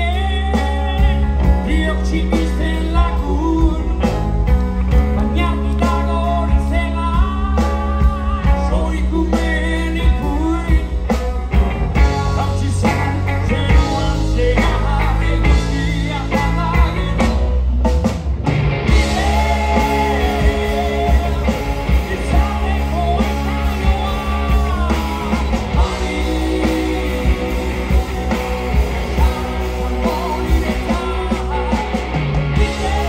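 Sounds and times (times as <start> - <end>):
bass guitar: 0.0 - 33.0
drums: 0.0 - 33.0
electric guitar: 0.0 - 33.0
men singing: 12.3 - 17.4, 18.9 - 33.0.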